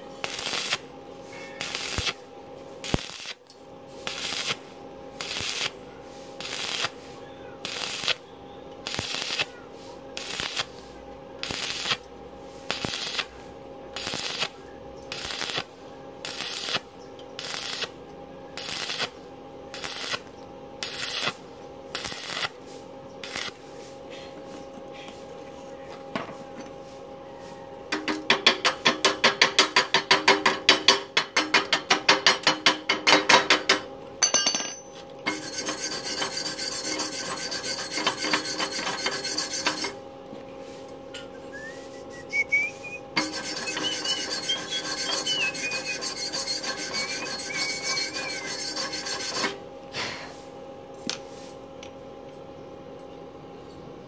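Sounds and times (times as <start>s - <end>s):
scrubbing slag off weld: 0.2s - 0.8s, 1.6s - 2.2s, 2.8s - 3.4s, 4.0s - 4.6s, 5.2s - 5.8s, 6.4s - 7.0s, 7.6s - 8.2s, 8.8s - 9.5s, 10.2s - 10.8s, 11.4s - 13.3s, 14.0s - 18.0s, 18.6s - 21.4s, 27.9s - 33.9s, 35.2s - 40.0s, 42.3s - 49.6s
welding arc crackling: 0.2s - 0.8s, 1.6s - 2.2s, 2.8s - 3.4s, 4.0s - 4.6s, 5.2s - 5.8s, 6.4s - 7.0s, 7.6s - 8.2s, 8.8s - 9.5s, 10.2s - 10.8s, 11.4s - 12.0s, 12.7s - 13.3s, 14.0s - 18.0s, 18.6s - 22.6s, 23.2s - 23.6s, 35.2s - 40.0s, 42.3s - 49.6s
scraping strokes: 35.2s - 40.0s, 42.4s - 49.6s.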